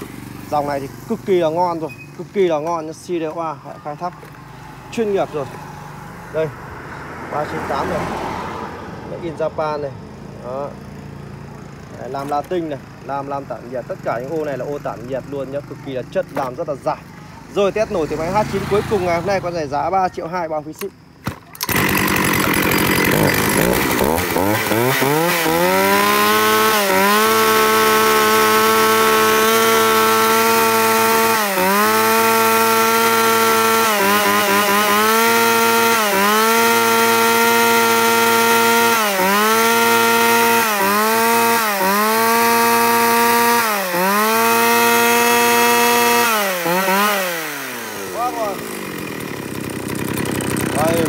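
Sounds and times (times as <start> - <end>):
chainsaw revving: 0.0 - 6.6, 7.2 - 8.5, 9.3 - 19.8, 20.7 - 51.0.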